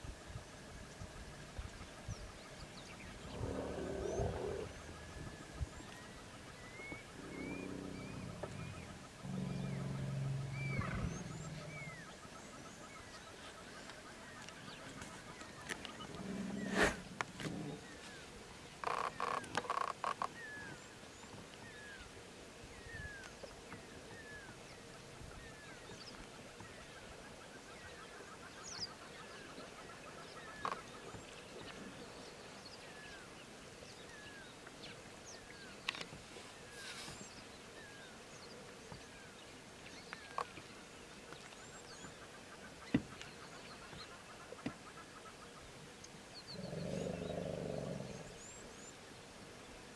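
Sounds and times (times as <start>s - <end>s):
birds chirping: 1.9s - 22.1s, 22.7s - 49.1s
elephant rumbling call: 3.2s - 5.8s, 6.8s - 12.1s, 16.0s - 17.9s.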